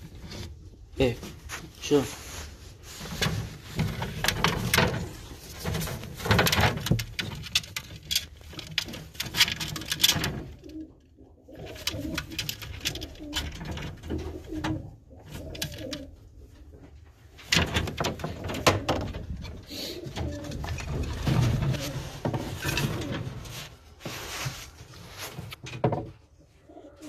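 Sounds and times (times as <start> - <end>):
rustling: 0.0 - 27.0
pigeons cooing: 8.6 - 17.0, 17.8 - 24.1, 26.3 - 27.0.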